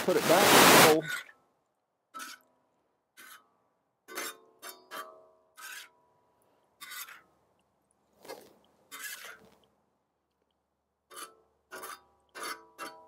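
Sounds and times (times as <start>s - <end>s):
metal spatula scraping a wok: 4.1s - 6.0s, 6.8s - 7.3s.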